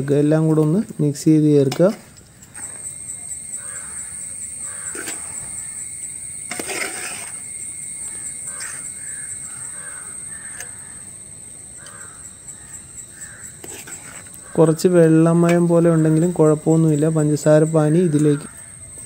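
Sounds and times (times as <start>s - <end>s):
spoon stirring and scraping pot: 4.7s - 5.6s, 6.5s - 7.4s, 8.4s - 9.1s, 13.2s - 16.7s.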